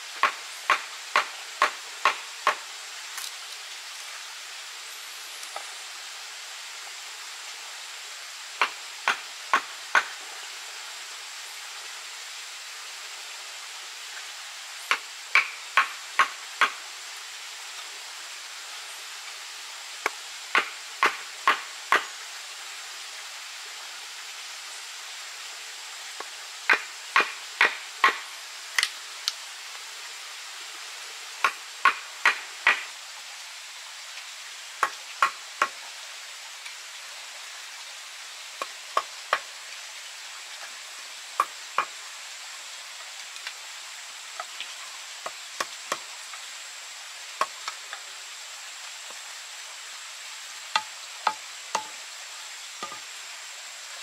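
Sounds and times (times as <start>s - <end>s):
steady background hiss: 0.0s - 54.0s.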